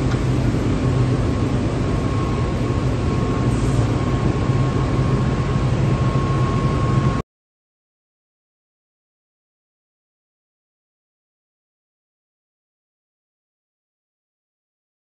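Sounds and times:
machine hum: 0:00.0 - 0:07.2
thin high whine: 0:00.0 - 0:07.2.

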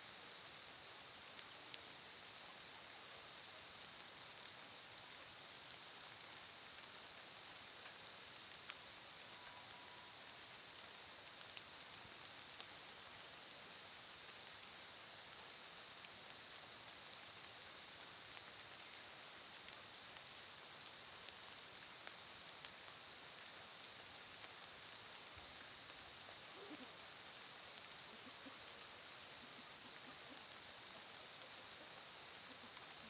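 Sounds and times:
faint outdoor hiss: 0:00.0 - 0:33.0
light ticks: 0:06.7 - 0:10.4, 0:11.2 - 0:13.2, 0:14.1 - 0:33.0.

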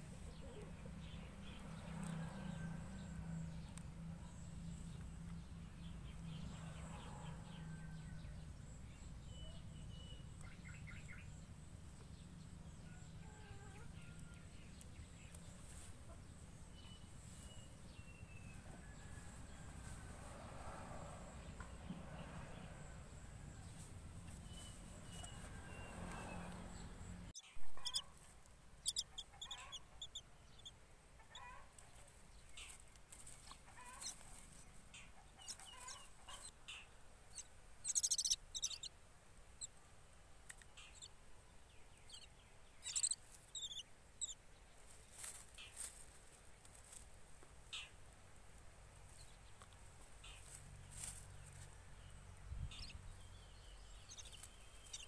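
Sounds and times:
bird chick begging calls: 0:27.4 - 0:28.0, 0:28.8 - 0:31.6, 0:35.4 - 0:38.9, 0:42.1 - 0:44.4, 0:54.1 - 0:55.0.

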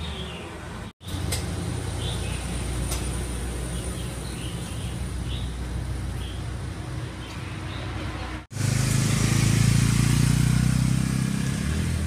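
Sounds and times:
small birds chirping: 0:00.0 - 0:08.3
traffic rumble: 0:00.0 - 0:12.0.

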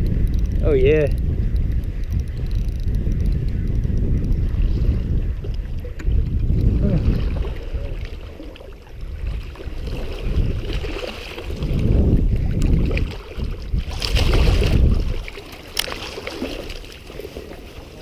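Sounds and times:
wind buffeting microphone: 0:00.0 - 0:18.0
water sloshing: 0:04.4 - 0:18.0
fish splashing: 0:06.9 - 0:11.9, 0:12.7 - 0:18.0.

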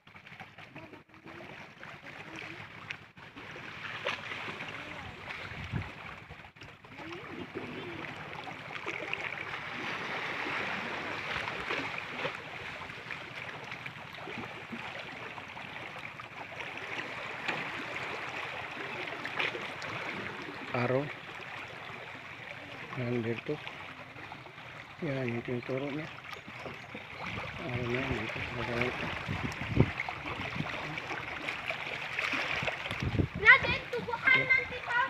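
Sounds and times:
water flowing over rocks: 0:06.6 - 0:35.0.

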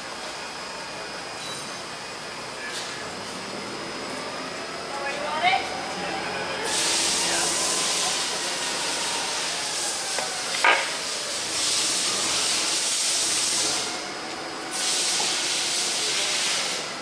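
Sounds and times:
steady high hiss: 0:06.5 - 0:17.0.

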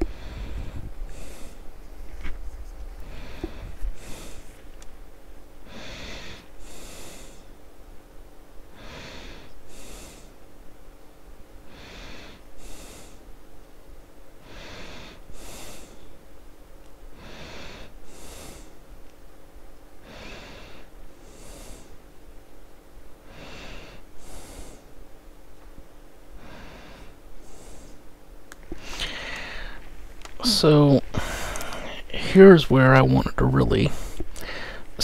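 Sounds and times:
person breathing slowly: 0:00.0 - 0:01.9, 0:03.0 - 0:04.8, 0:05.6 - 0:07.6, 0:08.6 - 0:10.6, 0:11.6 - 0:13.4, 0:14.4 - 0:16.2, 0:17.1 - 0:19.0, 0:20.0 - 0:22.1, 0:23.2 - 0:25.0, 0:26.3 - 0:28.1, 0:28.7 - 0:32.2, 0:33.8 - 0:35.0.

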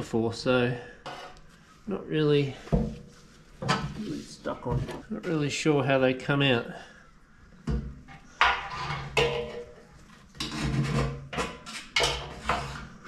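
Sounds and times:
metal clanking and scraping: 0:08.1 - 0:13.0.

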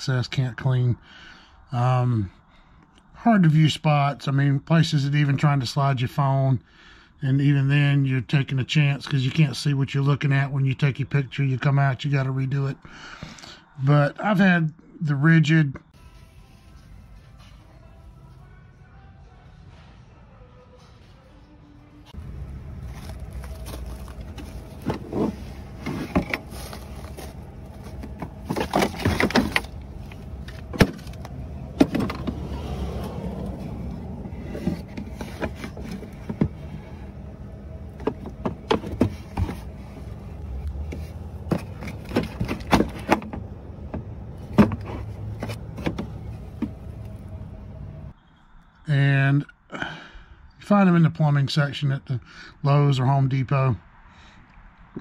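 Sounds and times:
steady low rumble: 0:22.1 - 0:42.7
plastic case handling rattles: 0:22.9 - 0:32.5, 0:34.3 - 0:36.8, 0:37.8 - 0:39.8, 0:41.0 - 0:46.8.

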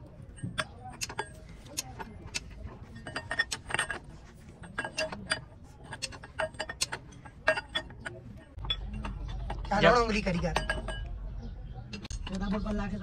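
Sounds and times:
light metallic clinks: 0:02.9 - 0:11.2.

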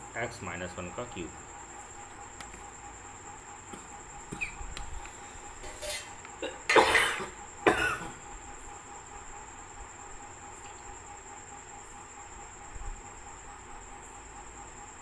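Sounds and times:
man coughing: 0:06.4 - 0:08.2.

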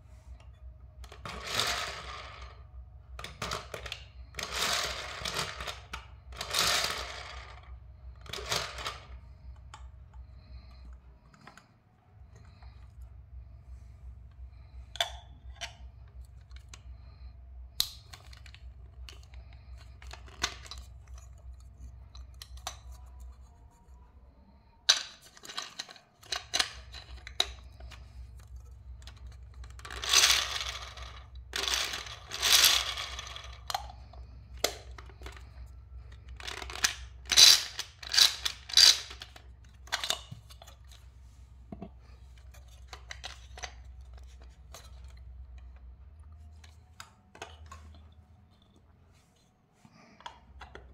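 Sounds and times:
plastic toy clicks and knocks: 0:03.1 - 0:07.6, 0:24.8 - 0:41.0.

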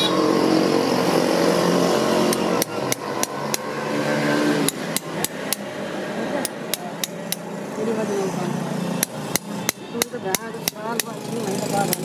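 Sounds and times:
hammer tapping steel blade: 0:04.6 - 0:05.7, 0:06.4 - 0:07.5, 0:09.0 - 0:12.0.

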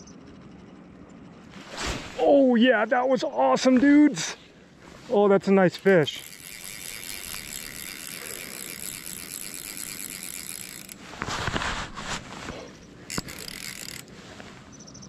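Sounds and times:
fishing reel drag clicking: 0:05.4 - 0:11.4, 0:13.0 - 0:14.5.

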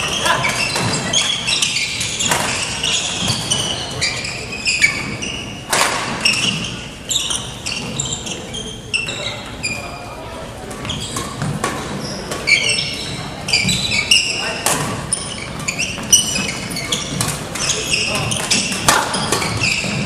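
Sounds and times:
shoes squeaking on wooden floor: 0:00.0 - 0:20.0
racket hitting shuttlecock: 0:00.2 - 0:03.7, 0:05.7 - 0:06.7, 0:14.6 - 0:20.0.

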